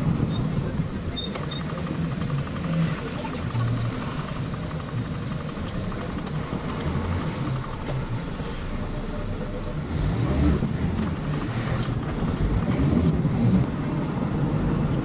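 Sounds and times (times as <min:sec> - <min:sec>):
van engine and road rumble: 0:00.0 - 0:15.0.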